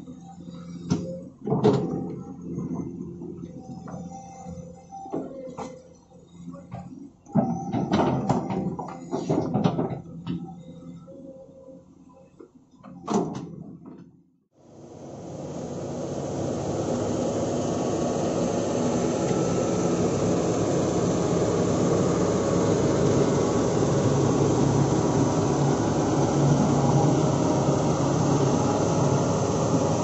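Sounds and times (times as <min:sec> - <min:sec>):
construction machine engine running: 0:14.6 - 0:30.0.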